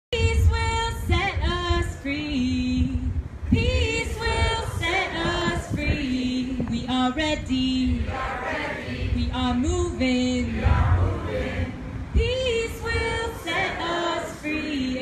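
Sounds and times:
woman singing unaccompanied: 0.1s - 8.1s, 8.7s - 11.0s, 12.2s - 15.0s
low rumble: 9.1s - 13.3s.

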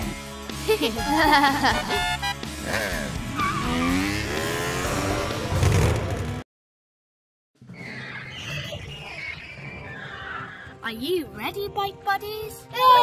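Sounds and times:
background music: 0.0s - 5.6s, 8.4s - 13.0s
cartoon motorbike revving: 1.1s - 6.4s.

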